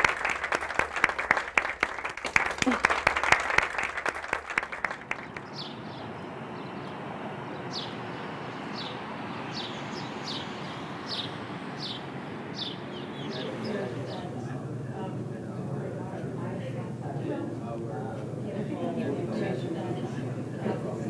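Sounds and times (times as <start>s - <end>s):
people applauding: 0.0s - 5.7s
outdoor background noise: 0.0s - 21.0s
bird chirping: 5.2s - 14.4s.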